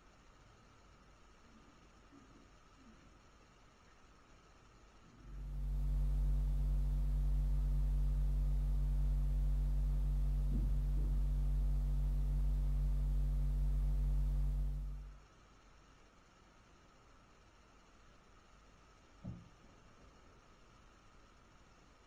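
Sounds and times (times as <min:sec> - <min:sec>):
low hum: 0:05.1 - 0:15.2.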